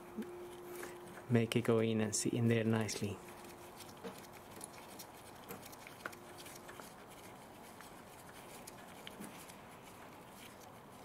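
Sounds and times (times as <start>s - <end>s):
small clicks and handling noises: 3.0s - 11.0s.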